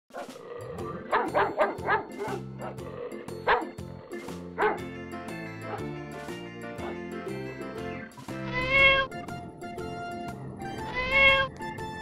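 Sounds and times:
dog barking: 0.1 - 2.8, 3.4 - 3.8, 4.6 - 4.9, 5.6 - 5.9, 6.8 - 7.0
background music: 0.1 - 12.0.

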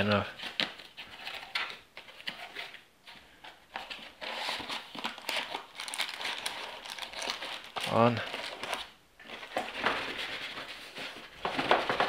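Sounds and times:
cardboard and plastic crinkling: 0.0 - 12.0.

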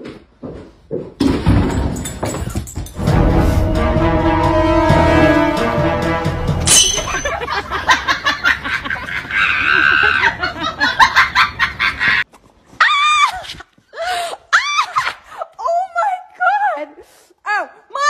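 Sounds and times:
person laughing: 7.1 - 12.2.

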